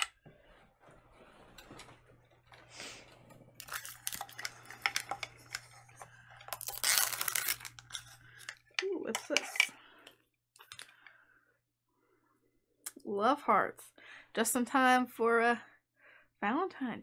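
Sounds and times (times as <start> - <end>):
wrapper crinkling: 3.5 - 8.6.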